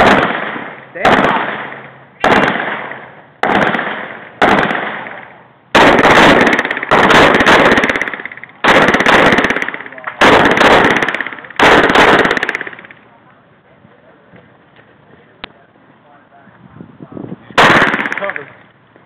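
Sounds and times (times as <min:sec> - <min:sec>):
pistol shots: 0:00.0 - 0:13.0, 0:17.6 - 0:18.6.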